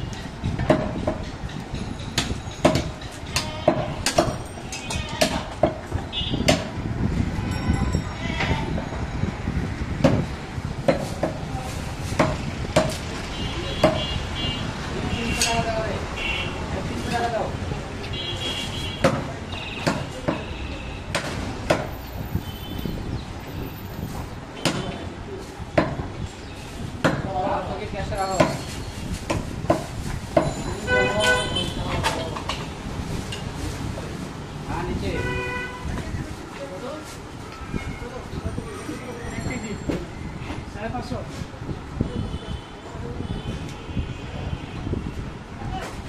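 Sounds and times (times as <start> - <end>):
market noise: 0.0 - 46.0
sharp knocks: 2.1 - 4.4, 5.2 - 6.8, 10.0 - 11.4, 12.2 - 13.0, 13.8 - 14.1, 19.0 - 20.5, 21.1 - 21.9, 24.6 - 25.0
cleaver chopping meat: 13.8 - 14.0, 19.0 - 20.5, 21.1 - 21.9, 24.6 - 25.0, 27.0 - 27.3.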